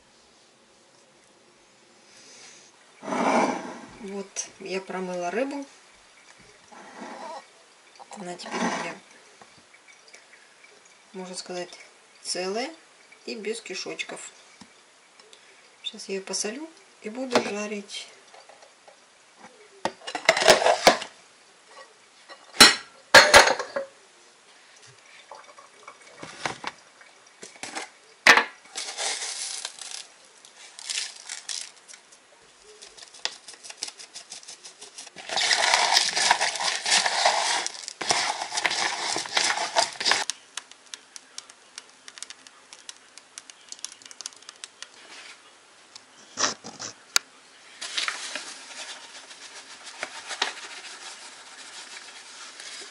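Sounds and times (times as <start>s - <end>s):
dishes clinking and knocking: 19.9s - 21.1s, 22.3s - 24.0s.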